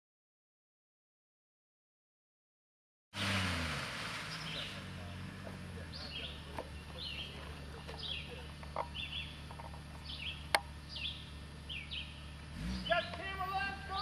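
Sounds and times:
engine idling: 3.4 - 14.0
birds chirping: 4.2 - 14.0.

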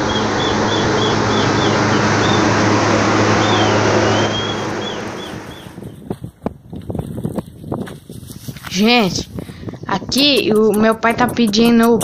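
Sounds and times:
long gliding chirp: 0.0 - 5.8
machine humming and hissing: 0.0 - 5.8.

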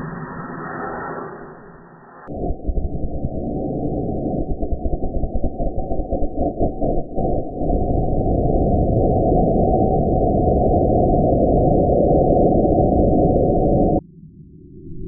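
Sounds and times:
quiet low rumble: 0.0 - 15.0.

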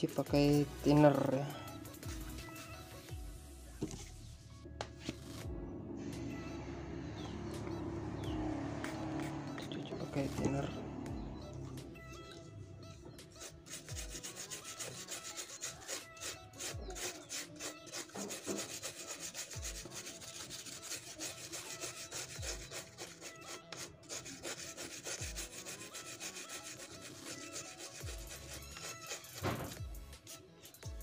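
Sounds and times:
brush scrubbing circuit board: 13.4 - 29.4.

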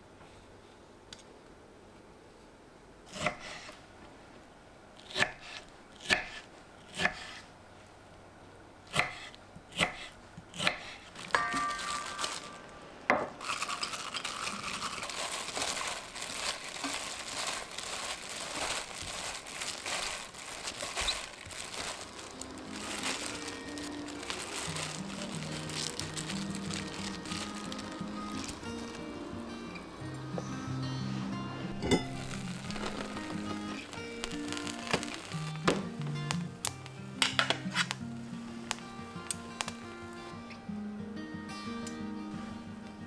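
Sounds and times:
crackly hiss: 12.0 - 40.6.

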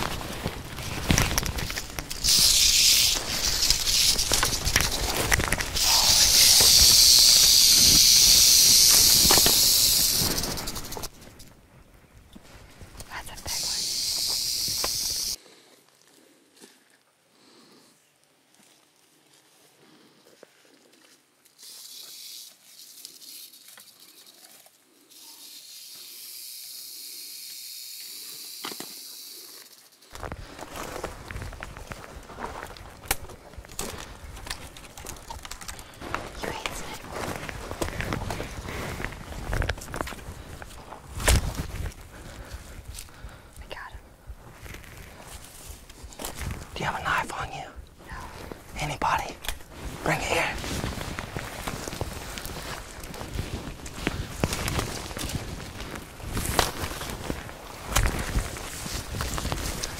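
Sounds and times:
footsteps crunching through dry brush: 0.0 - 11.3, 30.1 - 43.5, 44.2 - 46.8, 47.9 - 59.9
rattlesnake rattling: 0.0 - 11.6, 13.2 - 15.4, 21.5 - 32.9.

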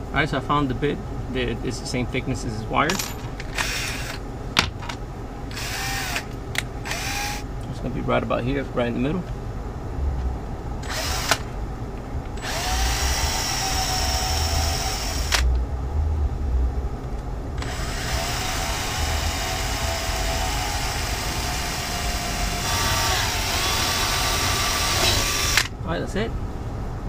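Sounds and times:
cordless drill motor whining: 3.6 - 4.2, 5.5 - 7.4, 10.8 - 11.5, 12.4 - 15.4, 17.6 - 25.7.

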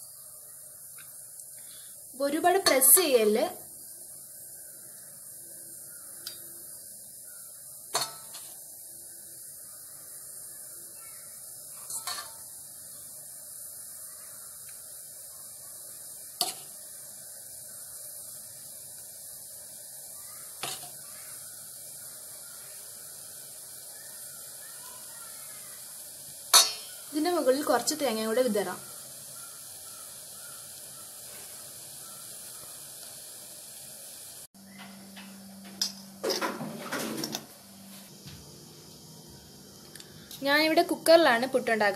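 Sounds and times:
faint steady hiss: 0.0 - 41.9
spoon clinking against metal: 26.5 - 27.0.

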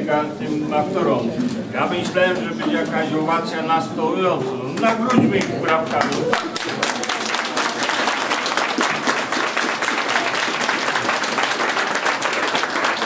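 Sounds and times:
audience applauding: 4.8 - 13.0.

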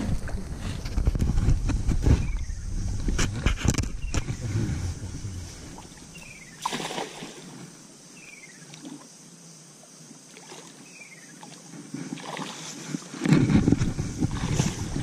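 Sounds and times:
loud low rumbling: 0.0 - 6.5
cast net slapping water: 6.6 - 7.6, 12.1 - 12.8, 14.2 - 15.0.

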